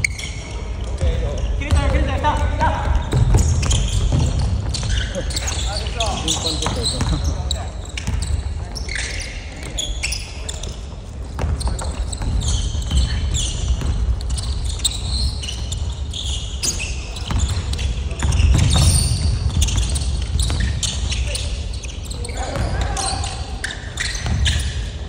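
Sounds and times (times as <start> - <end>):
sneakers squeaking on gym floor: 0.0 - 25.0
basketball bouncing: 0.9 - 5.4, 8.0 - 8.4, 11.2 - 15.1, 17.2 - 21.2.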